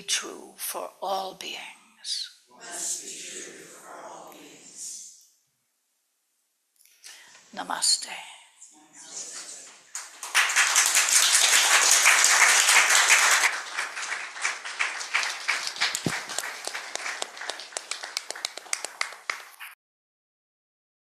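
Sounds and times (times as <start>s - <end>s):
audience applauding: 9.9s - 19.8s.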